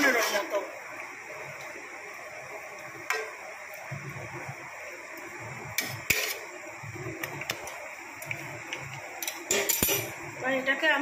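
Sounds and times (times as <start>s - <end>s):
metal spatula scraping a pan: 5.8s - 6.5s.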